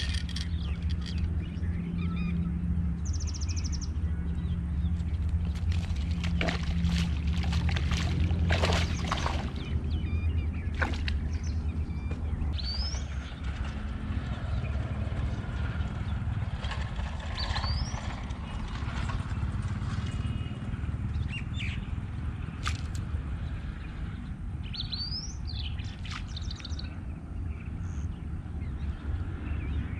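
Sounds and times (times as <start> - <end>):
sharp clicks and rustles: 0.0 - 1.4.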